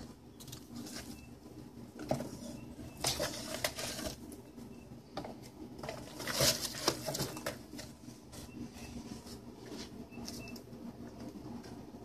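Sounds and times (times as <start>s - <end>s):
cat rustling in cardboard box: 2.1s - 4.2s, 5.9s - 10.0s.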